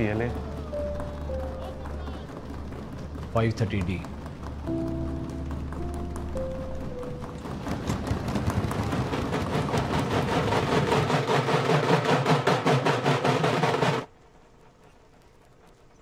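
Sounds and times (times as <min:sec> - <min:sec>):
drums beaten in fast rhythm: 0:09.5 - 0:14.1.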